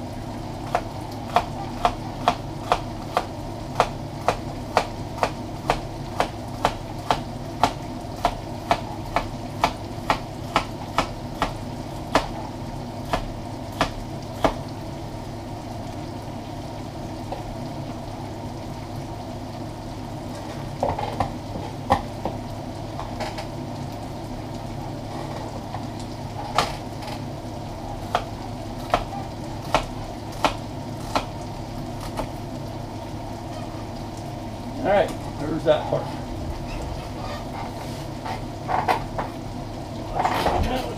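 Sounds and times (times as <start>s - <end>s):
meat sizzling in oil: 0.0s - 40.9s
knife chopping on cutting board: 0.7s - 12.4s, 13.1s - 14.6s, 28.0s - 31.3s.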